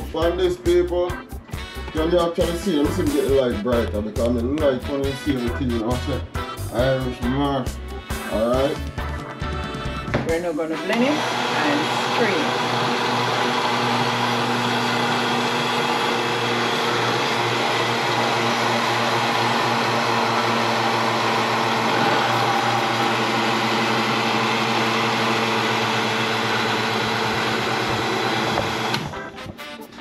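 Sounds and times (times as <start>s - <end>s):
blender motor running: 10.8s - 29.3s.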